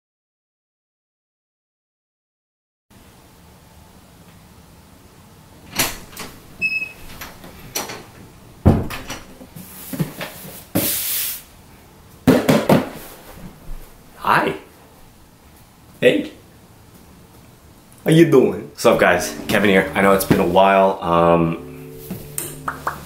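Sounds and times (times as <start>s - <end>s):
door opening and shutting: 5.6s - 9.5s
knocks and thumps: 8.6s - 9.2s.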